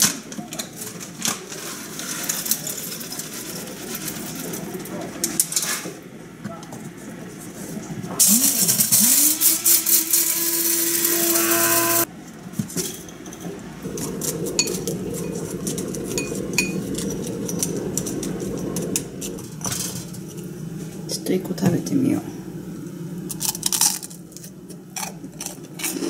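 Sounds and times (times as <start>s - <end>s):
blender motor grinding: 8.2s - 12.1s.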